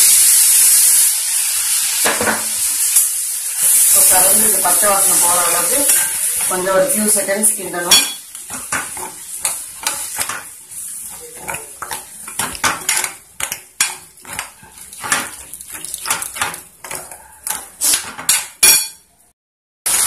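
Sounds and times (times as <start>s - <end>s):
metal spoon scraping a pan: 3.6s - 19.1s.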